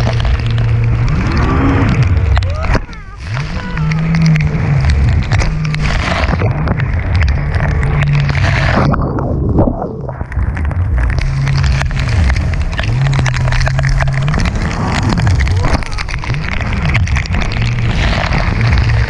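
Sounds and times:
jet ski engine revving: 0:00.0 - 0:07.0
rain and spray pattering: 0:00.0 - 0:08.8, 0:10.2 - 0:19.0
wind noise on microphone: 0:00.0 - 0:19.0.

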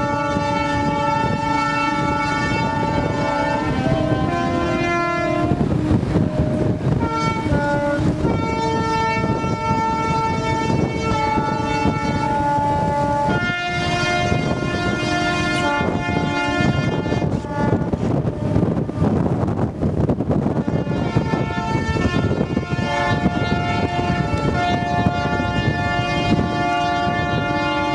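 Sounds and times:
low rumble: 0:00.0 - 0:20.7
ship horns blasting: 0:00.0 - 0:27.9.

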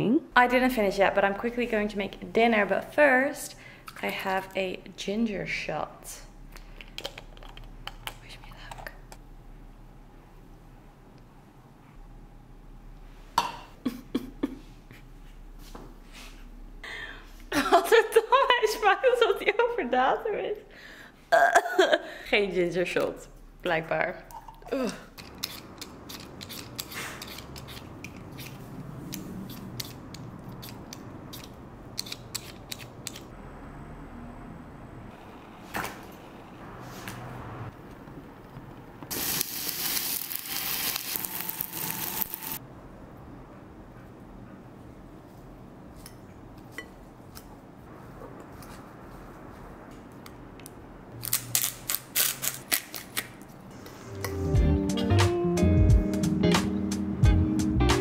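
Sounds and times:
peeler scraping potato: 0:25.2 - 0:33.2.

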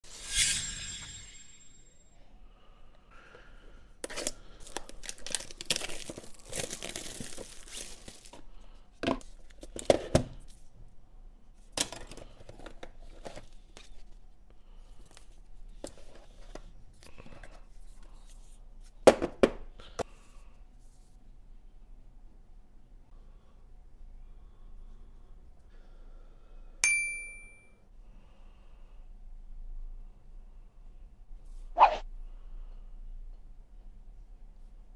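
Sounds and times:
cardboard and plastic rustling: 0:04.1 - 0:08.5
shrink wrap crackling: 0:04.2 - 0:08.3.

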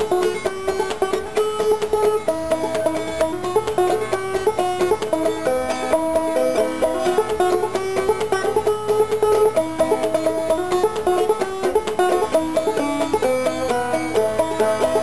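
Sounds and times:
banjo plucked notes: 0:00.0 - 0:15.0.

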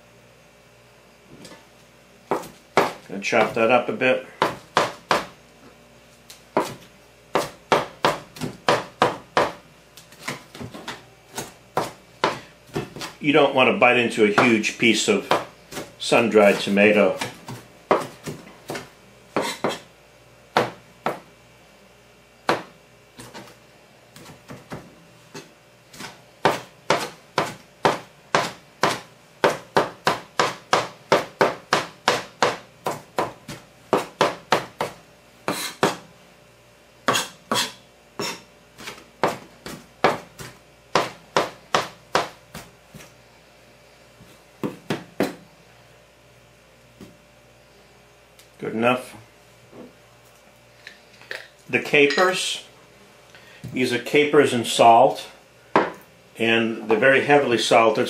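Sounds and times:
knife chopping on cutting board: 0:02.3 - 0:03.7, 0:04.4 - 0:05.3, 0:06.5 - 0:13.2, 0:14.3 - 0:14.6, 0:15.2 - 0:19.9, 0:20.5 - 0:21.2, 0:22.5 - 0:23.6, 0:24.2 - 0:36.1, 0:37.1 - 0:43.1, 0:44.6 - 0:45.4.

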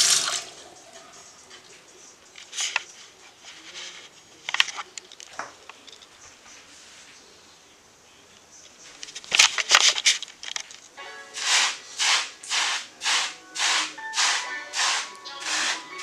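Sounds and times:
brush swishing through wet hair: 0:11.4 - 0:16.0.

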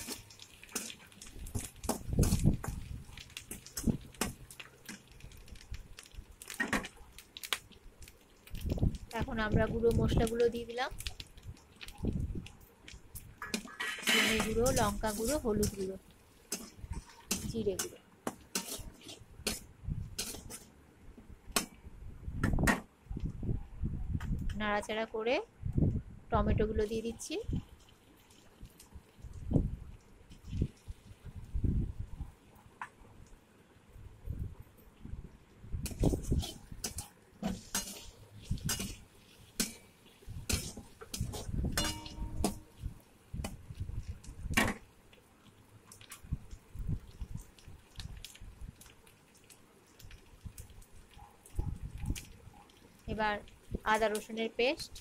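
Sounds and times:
metal spatula scraping metal pan: 0:13.4 - 0:15.9, 0:16.5 - 0:19.6, 0:36.0 - 0:39.8, 0:40.5 - 0:42.7.

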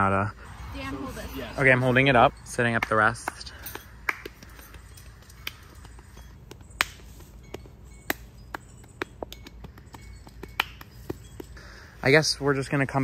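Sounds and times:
tent poles clicking and snapping: 0:02.8 - 0:11.6.

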